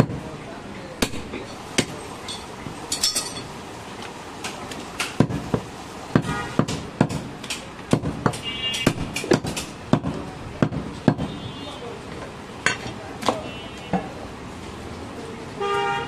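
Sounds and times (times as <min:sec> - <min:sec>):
knife chopping meat on wood: 0:04.4 - 0:11.3.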